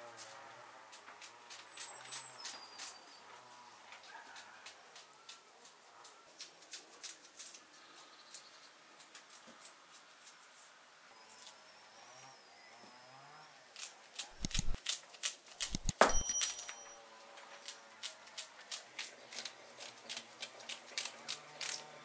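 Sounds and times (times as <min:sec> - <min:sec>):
knife clicking cutting food: 0:13.8 - 0:16.3
taps and clinks against metal pot: 0:15.9 - 0:16.8.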